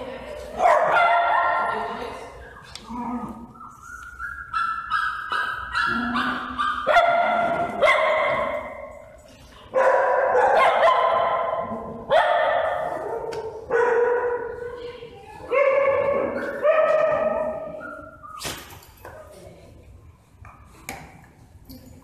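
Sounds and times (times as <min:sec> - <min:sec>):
small dogs barking: 0:04.5 - 0:08.7, 0:09.8 - 0:14.5.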